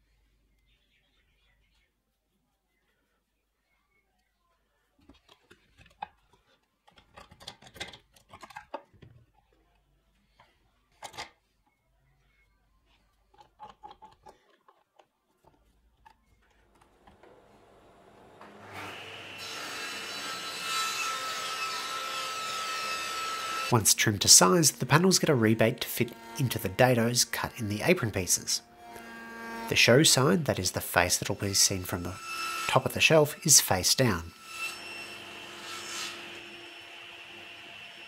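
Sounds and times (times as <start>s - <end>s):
table saw motor whine: 17.2s - 27.8s, 28.6s - 30.5s, 34.3s - 38.0s.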